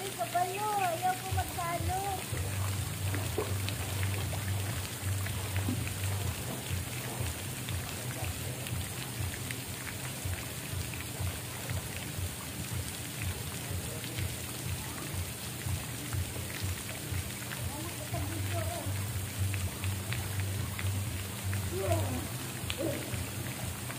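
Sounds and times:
water dripping: 0:00.0 - 0:23.9
water falling and splashing: 0:00.0 - 0:23.9
low rumble: 0:02.2 - 0:08.1.

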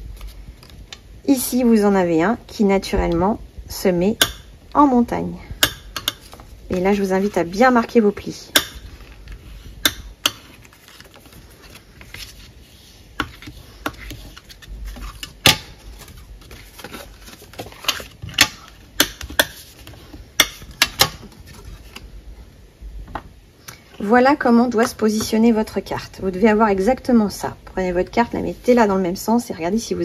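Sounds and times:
paper rustle: 0:10.4 - 0:18.8, 0:21.2 - 0:22.1.

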